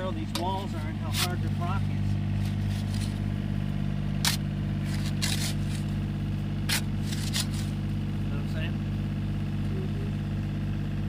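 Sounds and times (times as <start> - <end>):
excavator engine idling: 0.0 - 11.0
spade striking rock: 4.2 - 6.0, 6.6 - 7.8.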